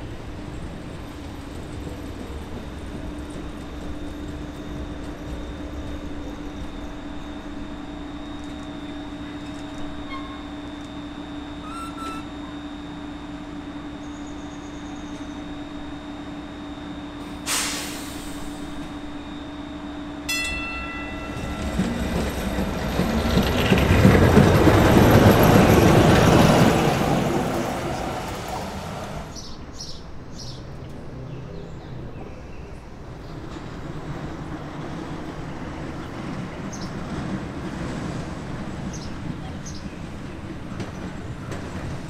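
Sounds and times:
trolley car rolling on rails: 0.0s - 16.8s, 20.3s - 42.0s
short pitched tone: 9.4s - 13.0s, 18.6s - 22.5s.

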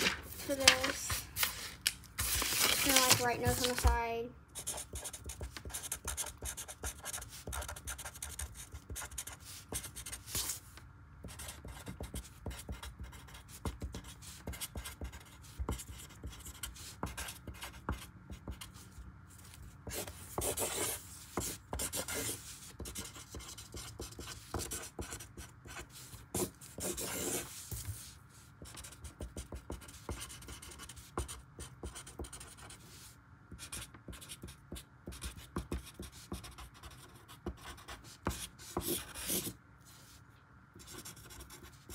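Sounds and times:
felt-tip marker scratching on paper: 4.6s - 10.5s, 11.2s - 18.7s, 19.9s - 32.8s.

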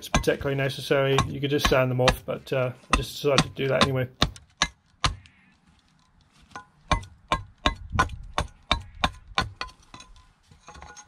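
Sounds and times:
billhook chopping wood: 0.0s - 5.3s, 6.8s - 9.7s.

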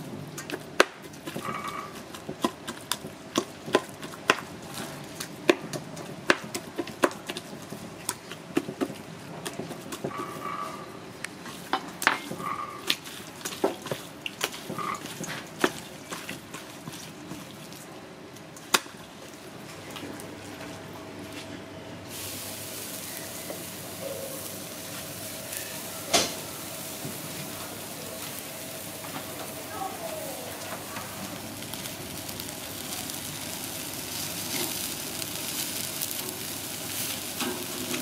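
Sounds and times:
meat sizzling on grill: 11.6s - 17.4s, 22.1s - 38.0s.

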